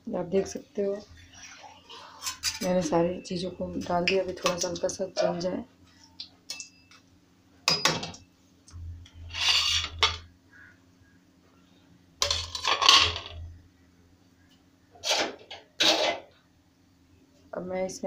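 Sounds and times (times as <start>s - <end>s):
metal utensils clattering and scraping: 2.0s - 2.9s, 9.3s - 10.2s, 12.2s - 13.4s, 15.0s - 16.3s.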